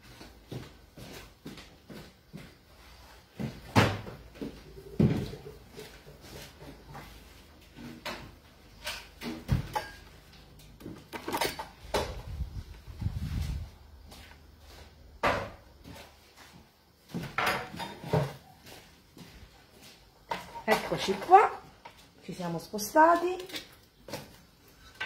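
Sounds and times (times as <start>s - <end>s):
kitchen items knocking and clattering: 3.4s - 7.0s, 7.7s - 12.5s, 17.1s - 18.5s, 20.2s - 22.0s.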